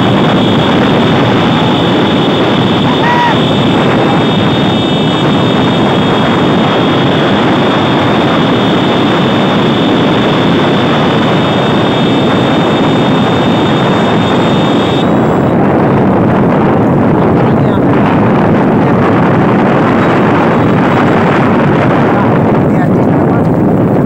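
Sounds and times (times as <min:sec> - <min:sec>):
thin high whine: 0:00.0 - 0:16.1
motorcycle engine running: 0:00.0 - 0:24.0
wind rushing on microphone: 0:00.0 - 0:24.0.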